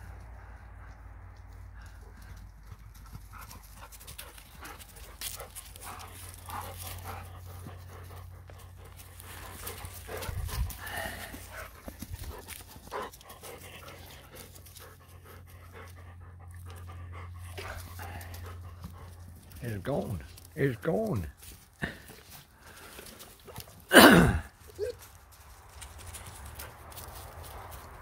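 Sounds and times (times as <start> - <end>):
dog panting hard: 0.2 - 19.6
rustling in dry leaves: 1.8 - 15.7, 21.3 - 23.9, 24.5 - 28.0.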